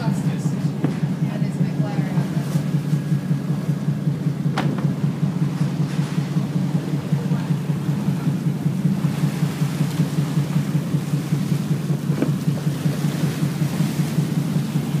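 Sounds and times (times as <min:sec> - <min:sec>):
boat engine rumbling: 0:00.0 - 0:15.0.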